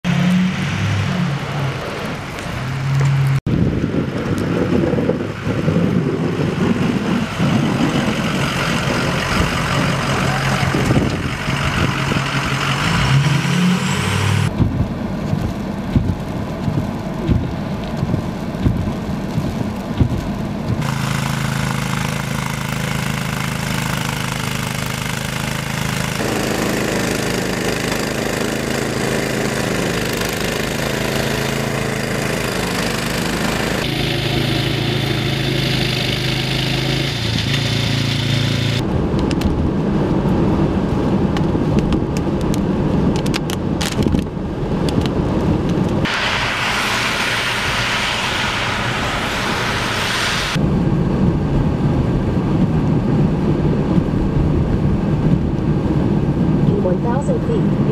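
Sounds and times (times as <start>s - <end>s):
rough wind rush: 0.0s - 57.9s
traffic noise: 0.0s - 57.9s
snowblower engine running: 4.3s - 14.5s, 20.8s - 38.8s, 46.0s - 50.6s.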